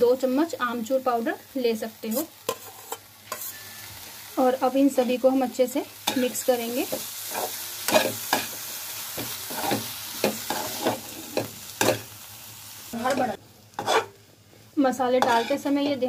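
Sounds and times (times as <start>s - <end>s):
light sizzle: 0.0s - 16.0s
metal spoon scraping a pan: 2.1s - 3.8s, 6.0s - 8.6s, 9.2s - 12.1s, 13.0s - 14.2s, 15.2s - 16.0s.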